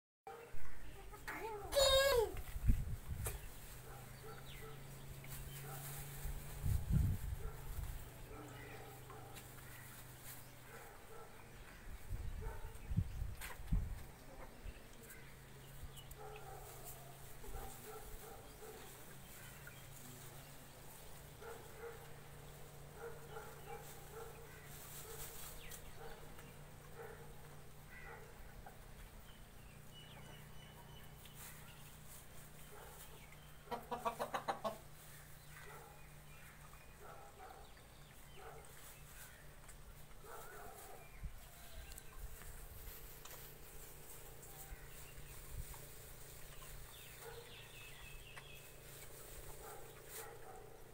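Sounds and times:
chickens clucking: 31.2s - 35.4s.

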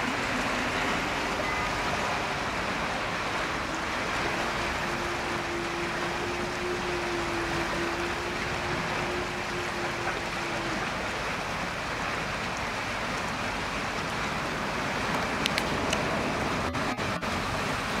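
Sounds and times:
low hum: 0.0s - 18.0s
river rushing: 0.0s - 18.0s.

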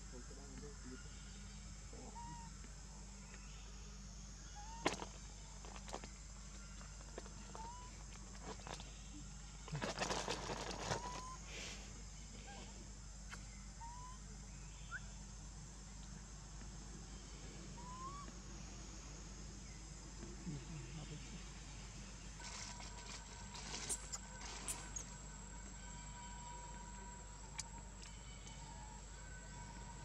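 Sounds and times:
steady low hum: 0.0s - 30.0s
rustling and crackling: 9.7s - 11.2s, 22.4s - 25.2s.

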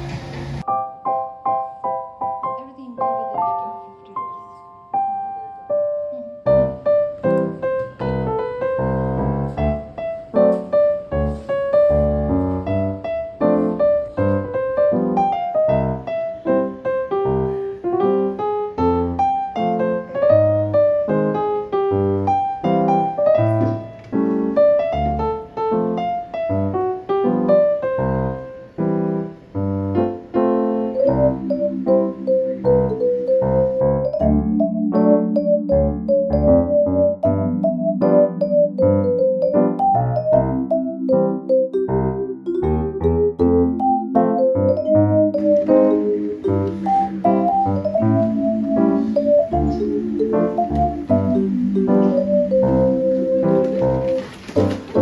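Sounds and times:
mellow piano tune: 0.6s - 55.0s
low bass notes: 31.0s - 38.1s, 41.9s - 54.0s.

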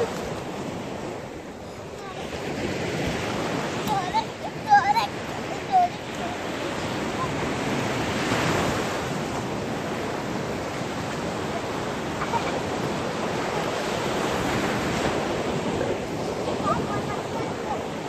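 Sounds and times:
waves washing over sand: 0.0s - 18.0s.

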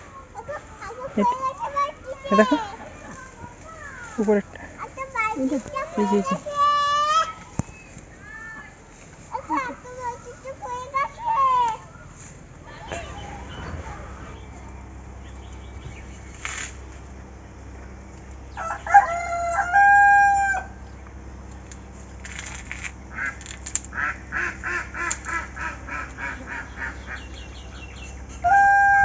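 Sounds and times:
rooster crowing: 12.7s - 15.2s, 18.5s - 20.8s, 28.4s - 29.0s.

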